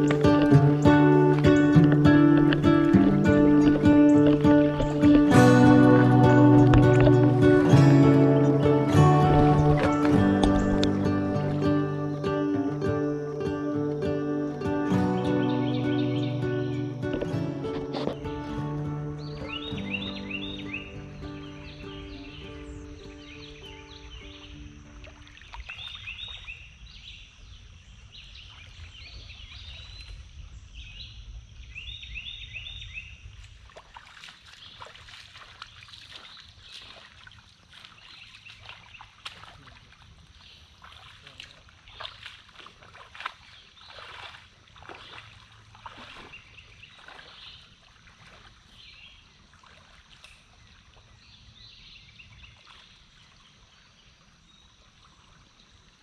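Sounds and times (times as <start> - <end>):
river water splashing over gravel: 0.0 - 26.9, 33.3 - 51.3
birds chirping: 0.0 - 33.2.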